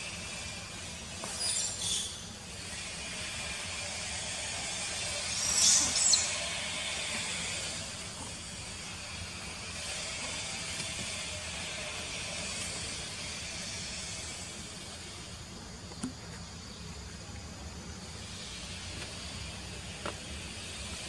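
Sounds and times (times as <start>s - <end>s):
high-pitched insect drone: 0.0s - 15.8s.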